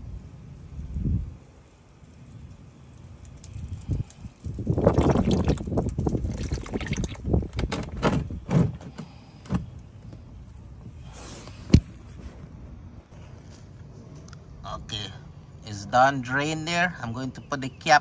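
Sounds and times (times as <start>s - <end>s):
oil draining into pan: 4.7s - 7.4s.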